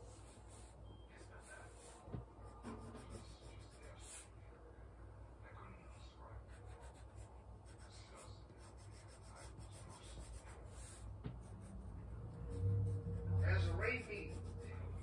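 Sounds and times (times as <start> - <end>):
low steady hum: 0.0 - 15.0
handwriting scratching on paper: 1.4 - 4.3, 6.4 - 15.0.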